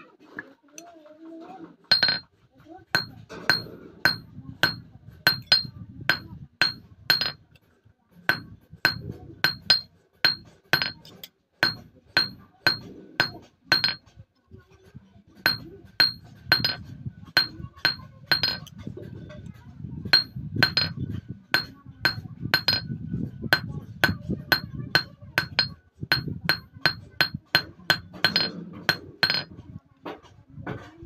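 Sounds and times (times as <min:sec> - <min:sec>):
hammer tapping metal on anvil: 0:01.9 - 0:02.2, 0:03.0 - 0:07.4, 0:08.3 - 0:14.1, 0:15.4 - 0:18.8, 0:20.1 - 0:22.9, 0:23.5 - 0:29.6.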